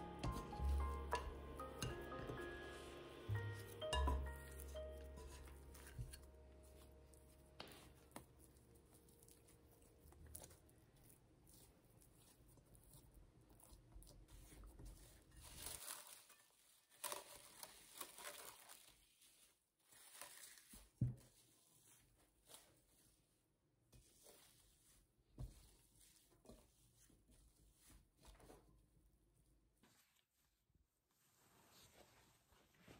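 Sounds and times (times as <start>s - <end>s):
plastic cling film crinkling: 3.4s - 22.9s.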